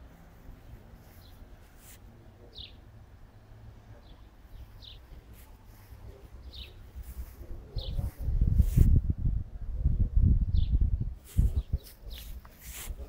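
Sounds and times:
small bird chirping: 0:01.0 - 0:02.8, 0:03.9 - 0:08.1.

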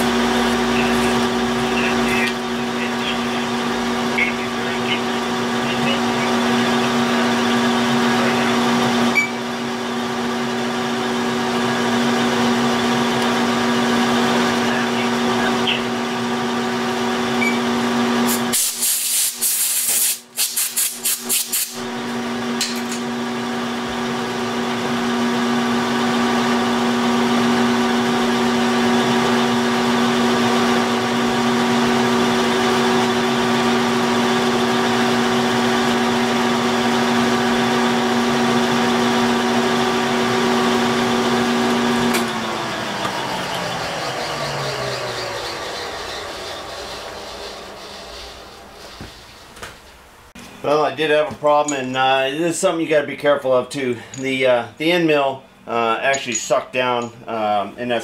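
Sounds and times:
milling machine humming: 0:00.0 - 0:18.5, 0:21.8 - 0:52.0
spindle winding down: 0:25.6 - 0:49.9.

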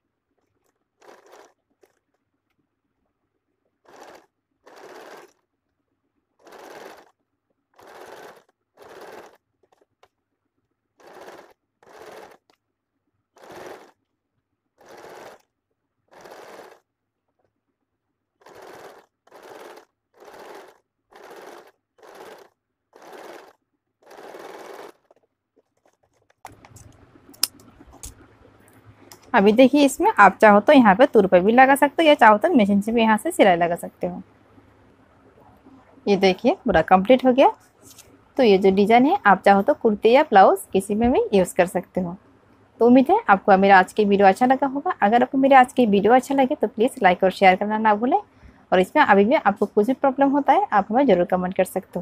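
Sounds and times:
sewing machine stitching: 0:00.3 - 0:02.2, 0:03.7 - 0:05.4, 0:06.4 - 0:10.2, 0:11.0 - 0:12.6, 0:13.4 - 0:14.0, 0:14.8 - 0:15.5, 0:16.1 - 0:17.5, 0:18.4 - 0:28.2
faint hum: 0:26.5 - 0:52.0.

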